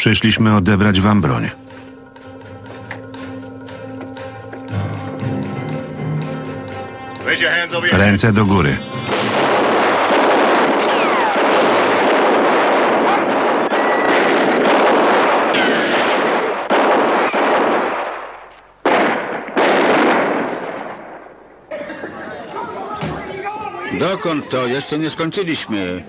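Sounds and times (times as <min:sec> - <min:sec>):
ricochet whines: 0:09.1 - 0:12.1, 0:13.0 - 0:14.7
rapid revolver gunfire: 0:09.1 - 0:21.1.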